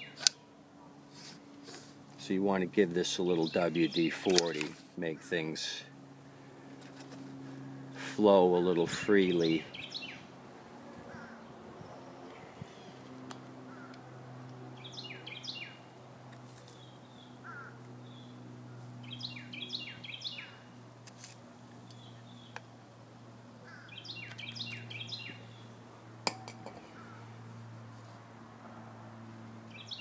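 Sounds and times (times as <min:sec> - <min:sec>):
steady low hum: 0:00.0 - 0:30.0
songbird whistling: 0:19.0 - 0:20.6, 0:23.9 - 0:25.4.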